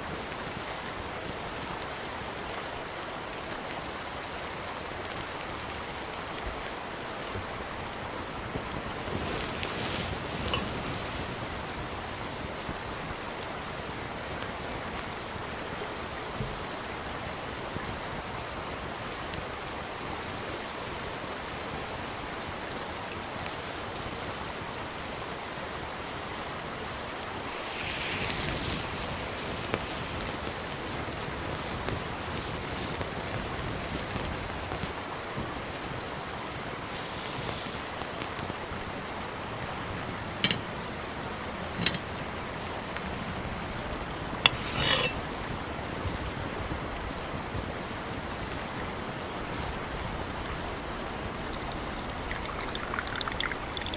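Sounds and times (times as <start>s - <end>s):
campfire hissing: 0.0s - 39.1s, 39.7s - 53.9s
fire popping: 0.1s - 19.6s, 27.5s - 35.1s, 35.8s - 38.6s, 44.1s - 47.6s, 51.4s - 53.9s
steak sizzling on grill: 8.5s - 18.3s, 27.5s - 34.9s, 35.8s - 38.5s, 44.4s - 45.5s.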